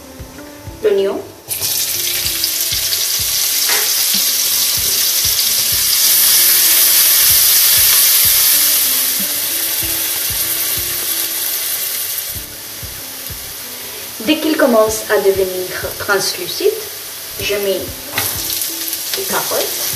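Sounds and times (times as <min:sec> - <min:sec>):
onion sizzling in hot oil: 0:00.2 - 0:19.9.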